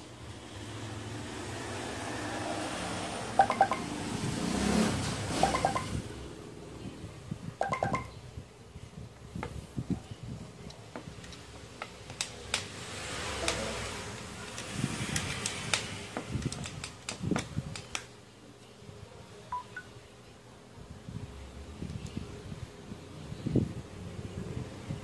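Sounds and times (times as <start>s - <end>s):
faint two-note beep: 7.6s - 8.2s
plastic clicks and taps: 14.5s - 18.1s.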